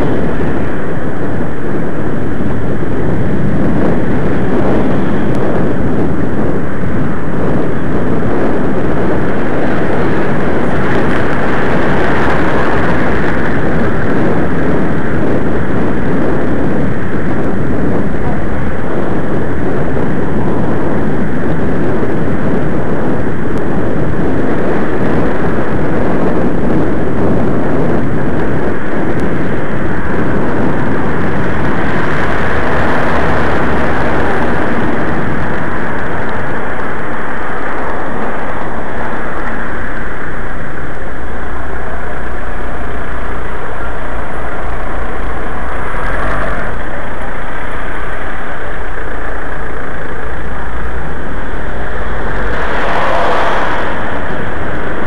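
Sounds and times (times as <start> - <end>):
bus passing close by: 0.0 - 17.5, 28.4 - 55.0
city road traffic: 0.0 - 55.0.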